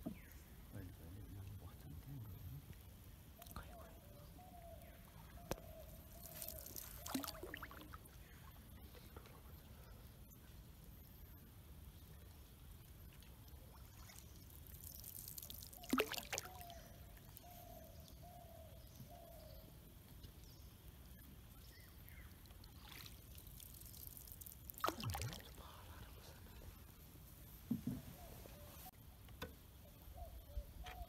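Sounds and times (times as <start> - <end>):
water pouring and trickling: 6.1 - 8.1, 13.1 - 17.5, 22.1 - 25.6
paddle strokes splashing: 6.1 - 9.5, 13.6 - 16.8, 22.6 - 25.6.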